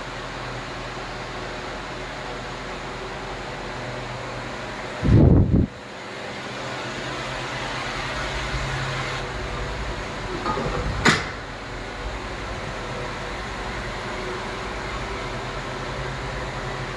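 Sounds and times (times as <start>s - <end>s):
fan-like whoosh: 5.0s - 5.8s
metallic door clank: 10.4s - 11.5s.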